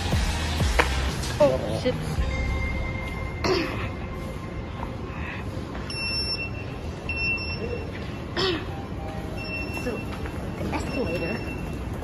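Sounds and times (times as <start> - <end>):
steady background din: 0.0 - 12.0
short electronic beeps: 5.8 - 8.1, 9.0 - 12.0.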